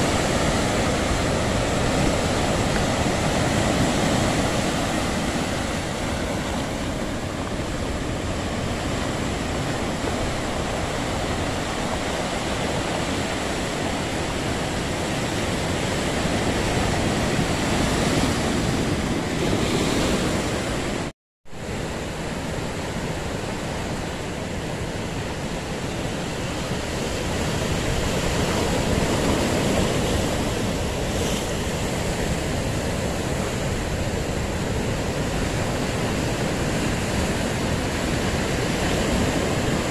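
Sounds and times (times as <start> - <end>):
surf breaking on rocks and pebbles: 0.0 - 21.1.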